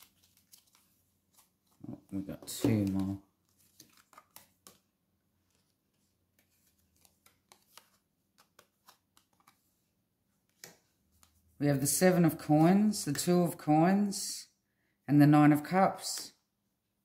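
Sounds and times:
cards flicking and tapping: 0.0 - 9.8, 10.4 - 11.5.

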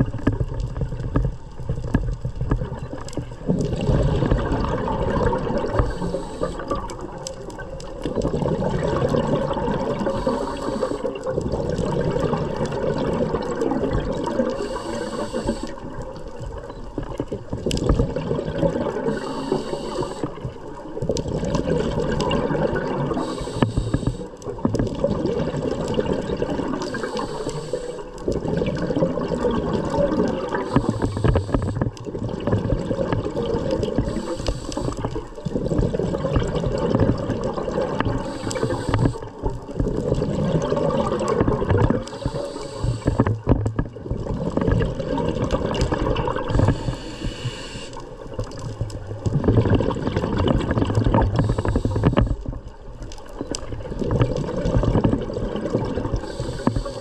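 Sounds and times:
gurgle of exhaled bubbles: 0.0 - 57.0
regulator hiss on inhale: 5.6 - 7.0, 9.9 - 11.2, 14.5 - 16.0, 19.0 - 20.5, 23.1 - 24.4, 26.7 - 28.2, 30.5 - 31.9, 33.9 - 35.4, 38.0 - 39.6, 42.0 - 43.5, 46.5 - 48.4, 51.2 - 52.6, 56.1 - 57.0.

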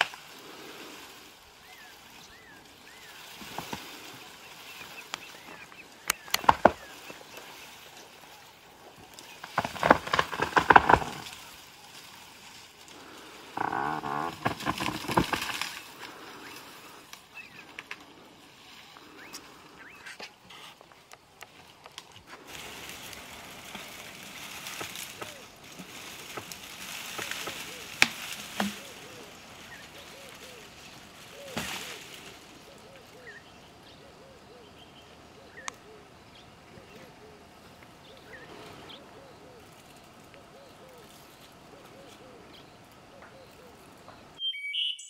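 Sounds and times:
branches cracking and snapping: 0.0 - 18.3, 19.0 - 33.4
faint bird chirps: 32.6 - 45.0.

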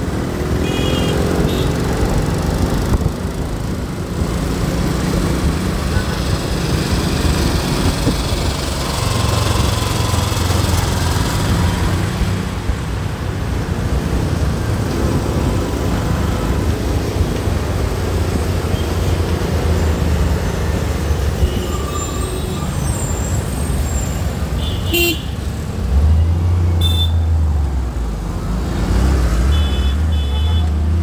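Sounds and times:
road traffic drone: 0.0 - 31.0.

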